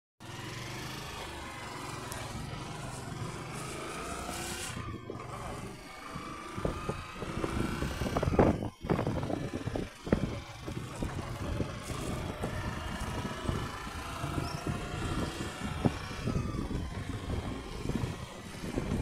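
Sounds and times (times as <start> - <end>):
motorcycle engine running: 0.2 - 19.0
wind buffeting microphone: 4.3 - 19.0.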